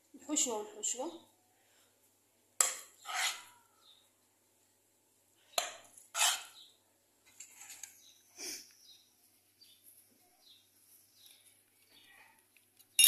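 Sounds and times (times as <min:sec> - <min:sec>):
spoon scraping pan: 0:02.6 - 0:03.6, 0:05.5 - 0:08.2.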